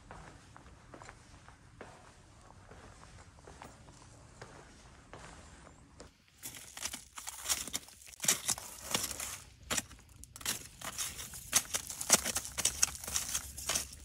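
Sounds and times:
rustling and crinkling: 6.1s - 14.0s.

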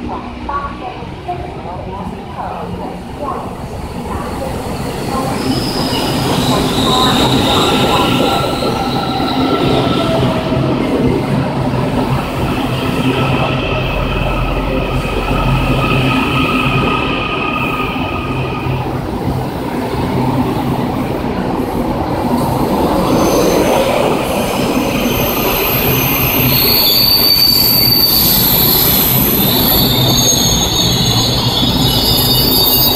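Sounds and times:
train wheels rumbling on rails: 0.0s - 32.9s
high-pitched wheel squeal: 5.4s - 10.4s, 24.5s - 32.9s.

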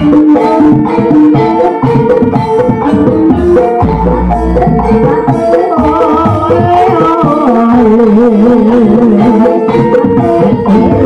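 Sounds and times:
wavering high melody: 0.0s - 7.3s
fast hand drum pattern: 0.0s - 11.0s.

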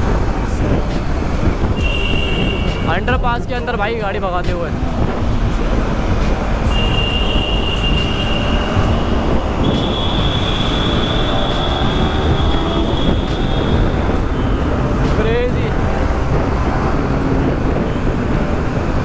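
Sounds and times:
wind rush on microphone: 0.0s - 19.0s
motorcycle running at speed: 4.4s - 19.0s.

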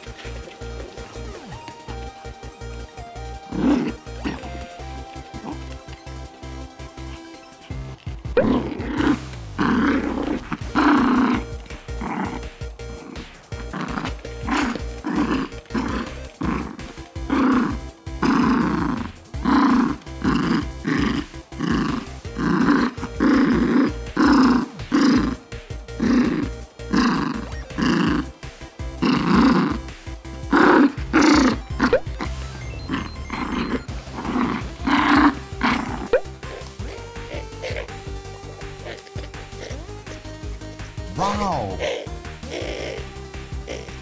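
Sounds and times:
small dog growling playfully: 0.0s - 44.0s.

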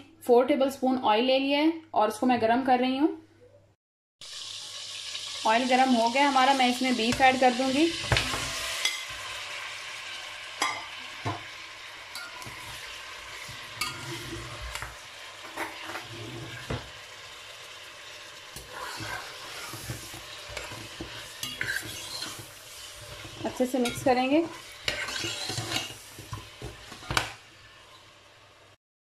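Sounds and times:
meat sizzling in hot oil: 4.2s - 28.8s
metal spoon scraping a pot: 12.1s - 16.8s, 18.6s - 27.8s.

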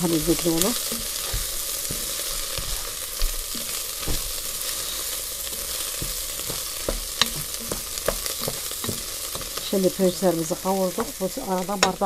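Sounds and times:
rice sizzling in a pot: 0.0s - 12.0s
spatula scraping and knocking pan: 0.0s - 12.0s.

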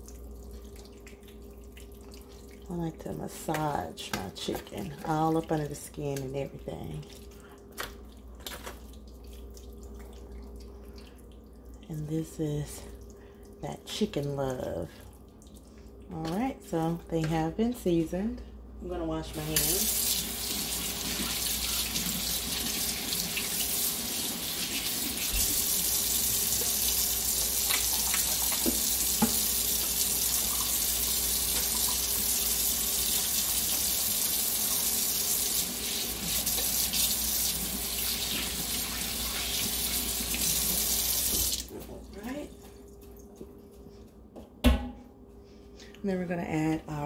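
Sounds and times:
faucet water splashing into sink: 19.4s - 41.8s.

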